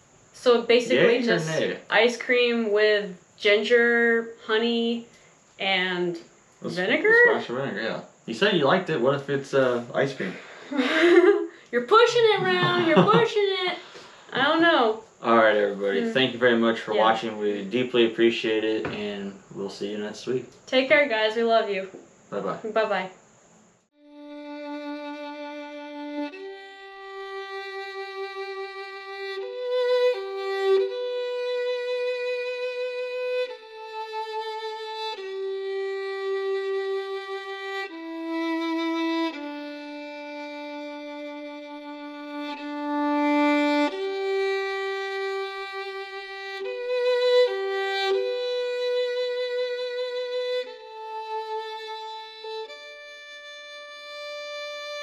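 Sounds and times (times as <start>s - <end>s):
solo violin slow melody: 6.6s - 7.6s, 8.7s - 14.6s, 23.9s - 55.0s.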